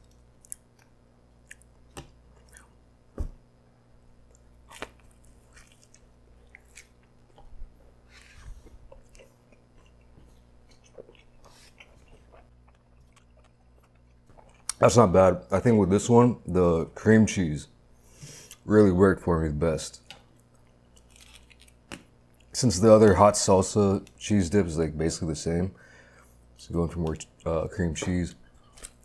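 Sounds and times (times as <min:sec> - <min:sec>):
chewing with wet mouth clicks: 0:00.0 - 0:01.7, 0:02.3 - 0:02.7, 0:04.3 - 0:07.6, 0:08.7 - 0:14.8, 0:20.2 - 0:22.6.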